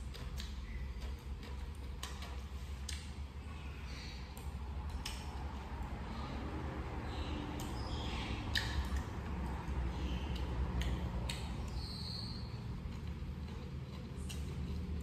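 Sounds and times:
chewing: 8.5 - 15.0.

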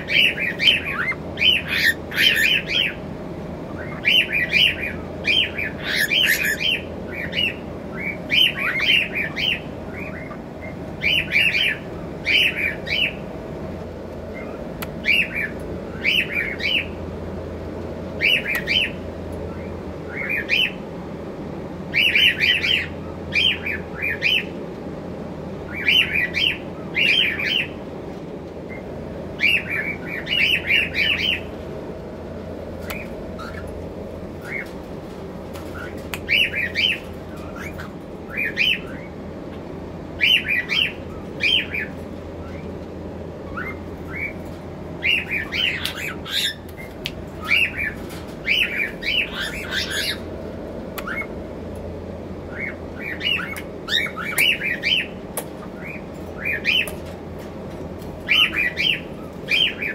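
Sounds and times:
cockatiel chirping: 0.0 - 3.0, 3.8 - 13.2, 45.0 - 50.2.

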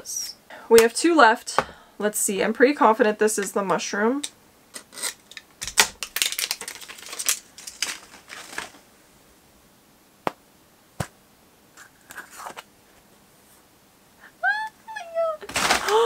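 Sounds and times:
plastic capsule clicks: 4.2 - 8.1
packaging crinkling: 4.7 - 8.9, 15.4 - 16.0.

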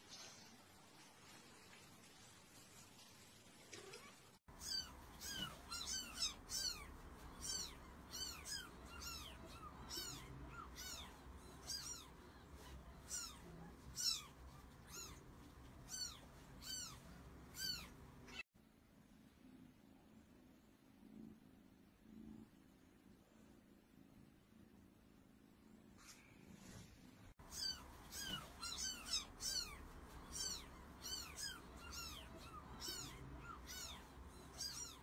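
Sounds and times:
kittens mewing: 3.8 - 18.4, 27.4 - 35.0.

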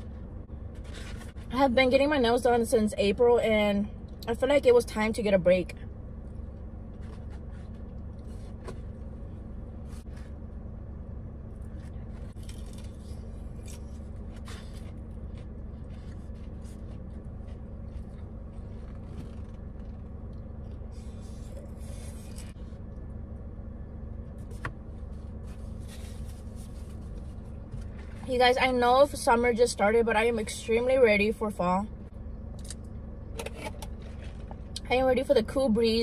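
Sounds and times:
car idling hum: 0.0 - 36.0
chewing fried food: 12.2 - 23.0.

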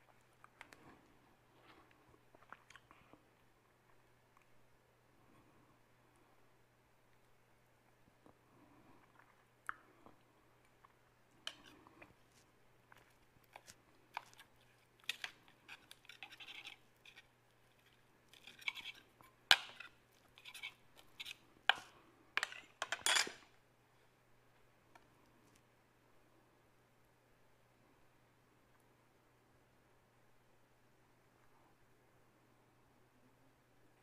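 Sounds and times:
fork scraping bread: 11.5 - 23.4
fork clinking on a plate: 22.4 - 23.4.

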